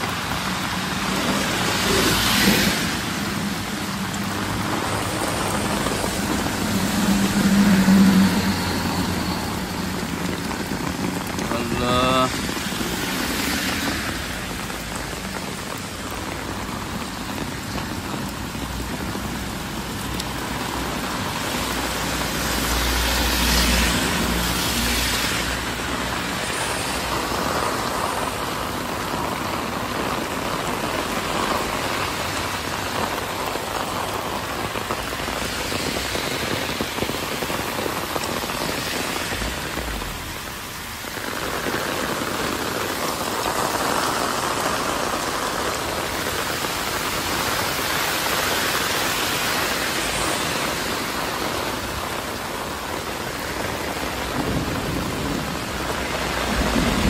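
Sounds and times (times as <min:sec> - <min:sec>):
heavy rain on pavement: 0:00.0 - 0:57.0.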